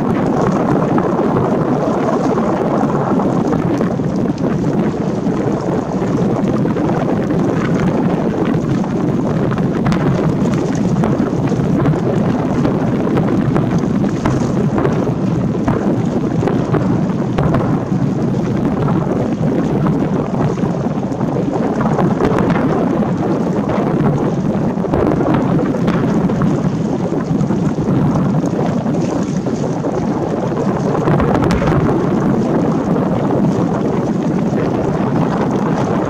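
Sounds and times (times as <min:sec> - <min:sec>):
wind rumble on microphone: 0:00.0 - 0:36.0
firework shells bursting: 0:31.1 - 0:32.9.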